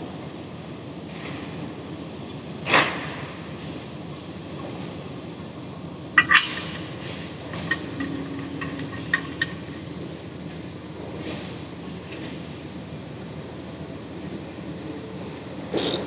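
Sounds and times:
background hum: 0.0 - 16.0
sharp clicks and knocks: 6.2 - 9.9.

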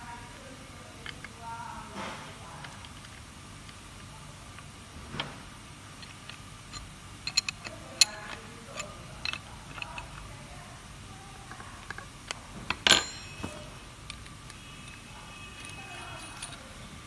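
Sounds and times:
metallic clicks and clinks: 6.0 - 10.3, 15.6 - 16.8.

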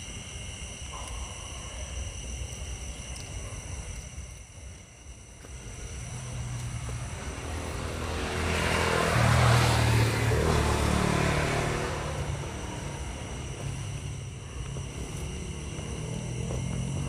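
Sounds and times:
motor vehicle passing by: 5.8 - 17.0.

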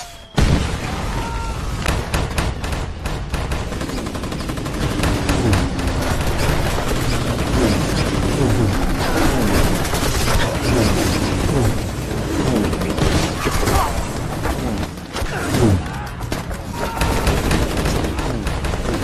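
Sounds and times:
explosions: 0.2 - 3.3
rapid gunfire: 1.8 - 19.0.

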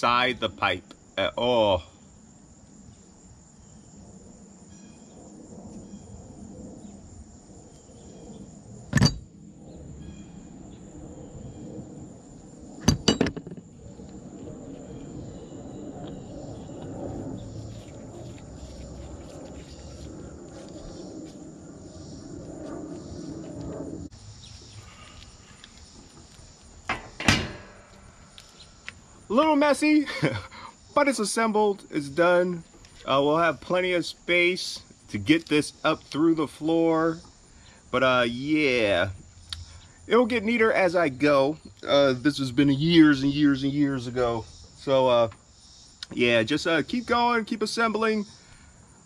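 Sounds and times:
high insect trill: 0.0 - 49.0
threads scraping and rubbing: 17.0 - 28.7.

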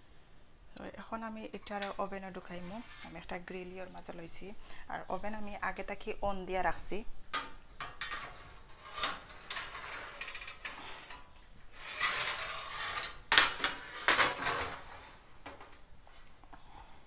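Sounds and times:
metal rack scraping in oven: 1.6 - 3.3, 7.8 - 15.2.

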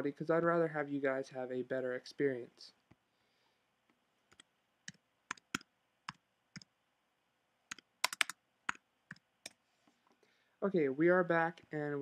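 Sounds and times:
keyboard keys clicking: 7.7 - 9.2.

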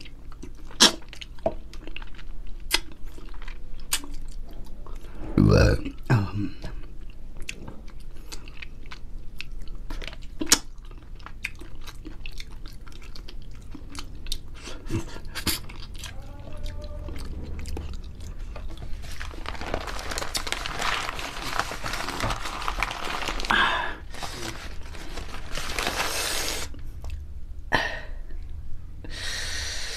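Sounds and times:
chewing and lip smacking: 0.0 - 5.1, 6.8 - 19.1
food wrapping crinkling: 14.8 - 26.8.

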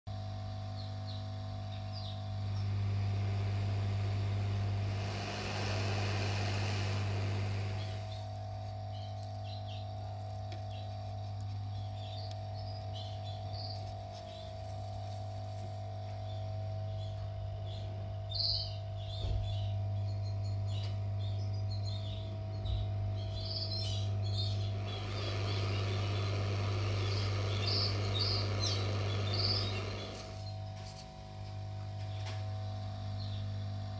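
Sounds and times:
low motor hum: 0.1 - 33.9
rushing air hiss: 2.8 - 8.7, 24.7 - 30.6.

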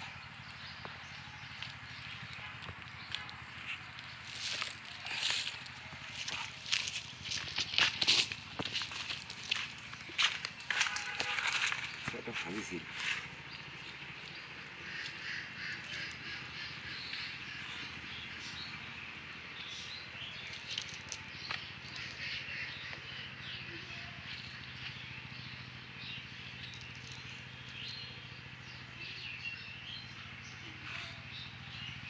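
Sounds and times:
birds chirping: 0.0 - 32.0.

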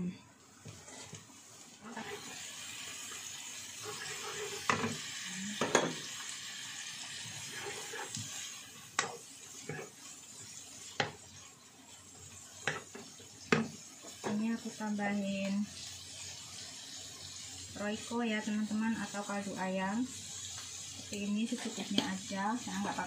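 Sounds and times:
food sizzling in a frying pan: 0.0 - 23.0
spatula stirring: 0.6 - 2.4, 3.8 - 5.0, 7.1 - 14.7, 20.2 - 23.0.

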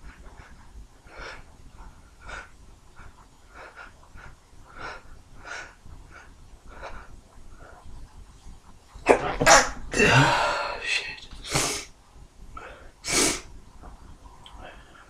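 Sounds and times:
man sharp breaths and sniffs: 10.2 - 11.9, 12.6 - 13.5.

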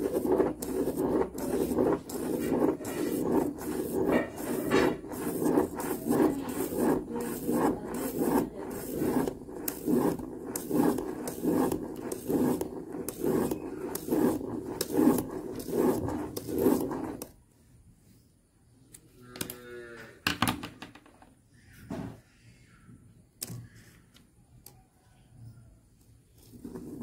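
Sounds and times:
plastic gear scratchy rubbing: 0.0 - 17.3, 26.3 - 27.0.

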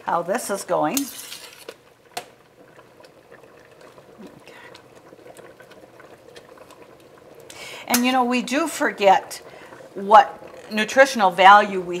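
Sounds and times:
water boiling with bubbling: 0.0 - 12.0.

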